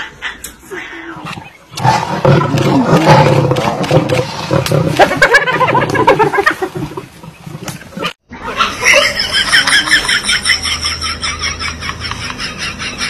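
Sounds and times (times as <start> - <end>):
big cats growling: 0.9 - 8.2.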